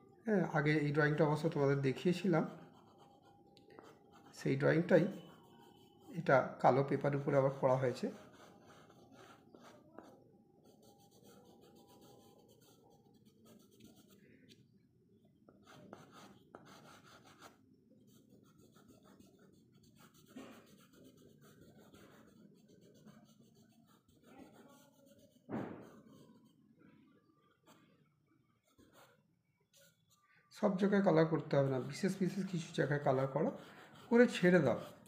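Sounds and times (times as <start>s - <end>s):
pastel scratching on paper: 2.2s - 6.2s, 6.8s - 14.2s, 15.6s - 26.6s, 30.8s - 35.0s
short thump: 25.5s - 25.9s.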